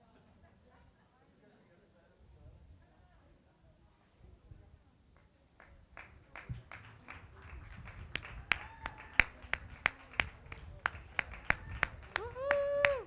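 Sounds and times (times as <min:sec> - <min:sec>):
rhythmic clapping: 0:05.2 - 0:13.0.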